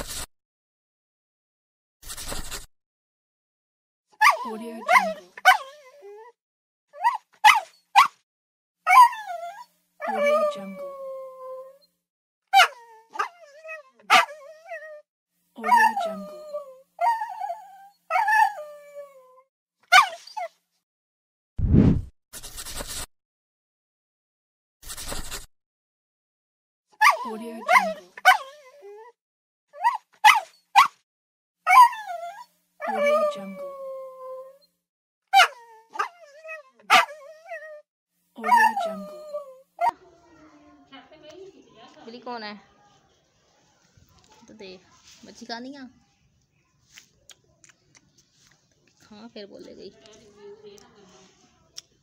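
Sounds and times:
small dog yipping and whining: 0:04.2 - 0:08.2, 0:08.9 - 0:11.9, 0:12.6 - 0:15.0, 0:15.6 - 0:20.6, 0:27.0 - 0:31.0, 0:31.7 - 0:34.7, 0:35.4 - 0:37.8, 0:38.4 - 0:40.0
dog howling: 0:08.9 - 0:11.8
small dog howling: 0:08.9 - 0:11.8, 0:15.6 - 0:19.4, 0:31.7 - 0:34.6, 0:38.4 - 0:40.0.

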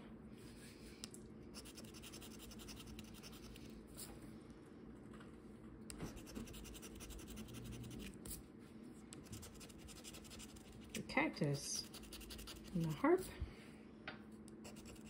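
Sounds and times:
lottery ticket being scratched: 0:06.2 - 0:08.1, 0:09.3 - 0:11.0, 0:11.8 - 0:12.9.

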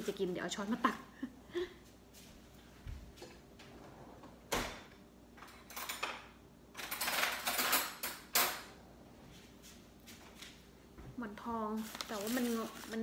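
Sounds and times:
cutlery rattling in drawer: 0:05.4 - 0:08.7.

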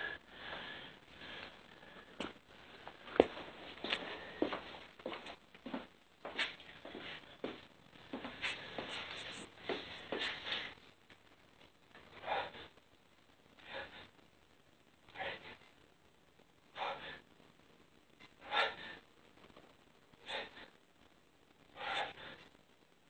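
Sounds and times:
man gasping breaths: 0:00.0 - 0:02.3, 0:18.4 - 0:19.1, 0:20.2 - 0:20.8, 0:21.8 - 0:22.5.

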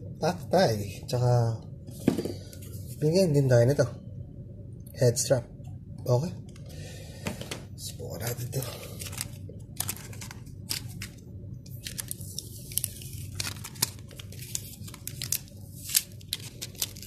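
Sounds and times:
plastic bag crinkling: 0:08.9 - 0:11.1, 0:11.7 - 0:17.0.

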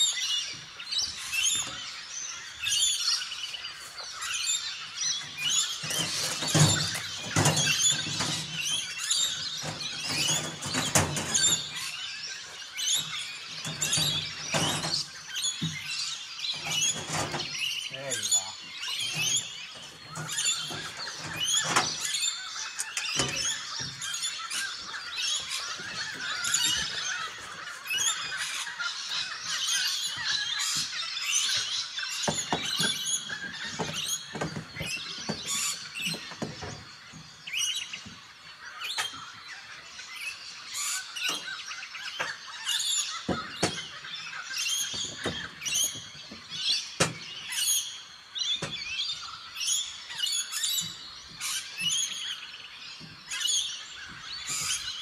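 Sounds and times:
birds chirping and calling: 0:00.0 - 0:55.0
sharp clicks and knocks: 0:05.8 - 0:11.9, 0:13.0 - 0:17.6.

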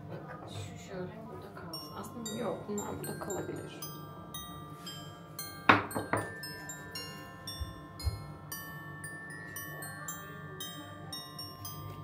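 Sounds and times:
chiming mallet music: 0:01.6 - 0:12.0
objects knocking on countertop: 0:05.7 - 0:06.3.

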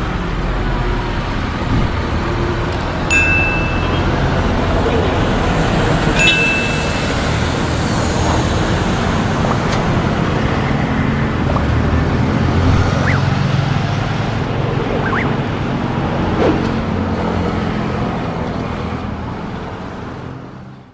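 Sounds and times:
jet engines rumbling at takeoff: 0:00.0 - 0:20.2
wind buffeting microphone: 0:01.4 - 0:02.5.

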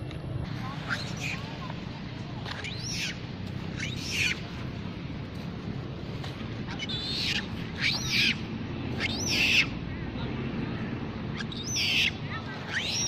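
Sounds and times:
infant monkey crying: 0:00.8 - 0:01.6, 0:02.5 - 0:04.4, 0:06.6 - 0:08.4, 0:09.0 - 0:09.8, 0:11.3 - 0:13.0.

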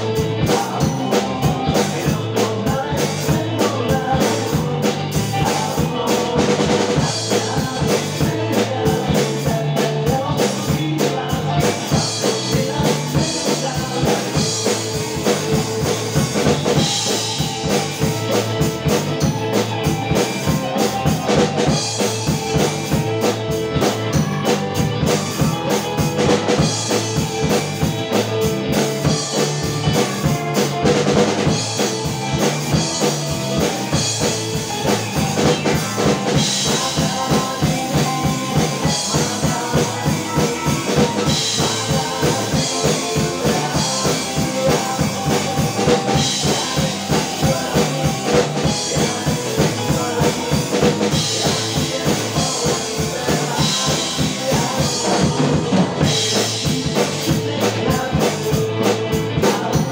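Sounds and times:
drum kit rock beat: 0:00.0 - 0:59.9
recorded rock song: 0:00.0 - 0:59.9.

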